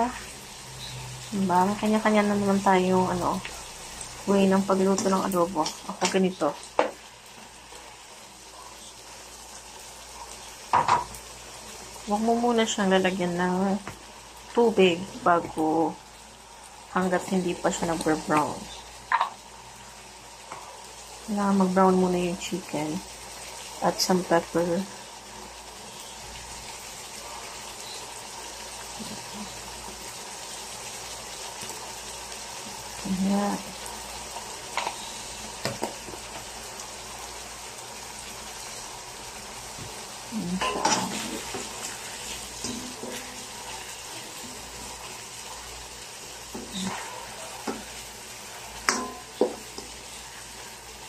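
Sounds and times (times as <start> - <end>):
chicken sizzling in a wok: 0.0 - 51.0
spatula knocking against pan: 48.9 - 49.6.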